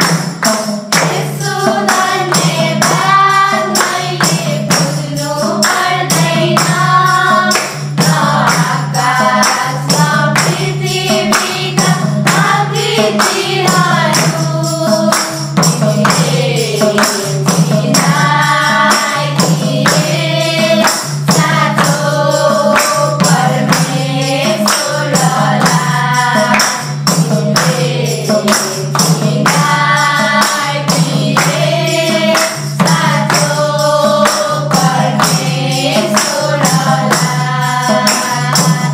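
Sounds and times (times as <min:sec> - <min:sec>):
group singing devotional song: 0:00.0 - 0:38.9
hand claps: 0:00.0 - 0:38.9
hand drum: 0:00.0 - 0:38.9
jingling tambourine: 0:00.0 - 0:38.9.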